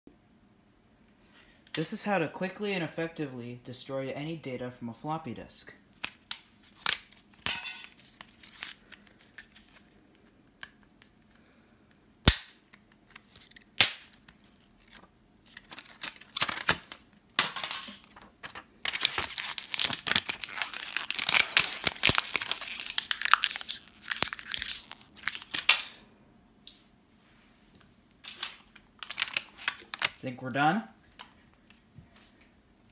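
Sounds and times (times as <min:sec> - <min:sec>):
thin disk crinkling and tearing: 0:08.0 - 0:10.3, 0:12.9 - 0:17.1, 0:17.9 - 0:26.0, 0:28.2 - 0:30.2.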